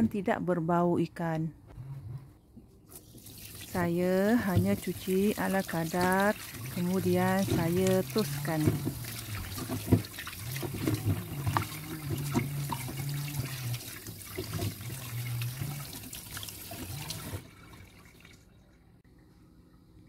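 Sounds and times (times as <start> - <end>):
tap water running and splashing: 2.9 - 18.5.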